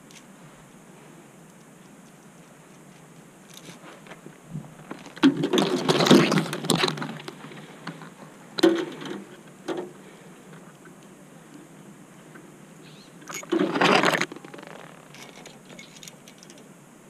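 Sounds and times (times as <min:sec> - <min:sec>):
rope and branches rustling: 0:00.0 - 0:16.7
metal climbing hardware clinking: 0:13.3 - 0:16.7.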